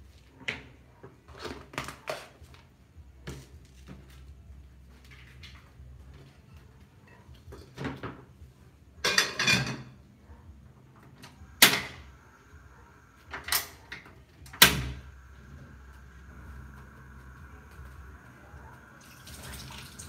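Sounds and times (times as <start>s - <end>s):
pot lid clattering: 9.1s - 10.0s.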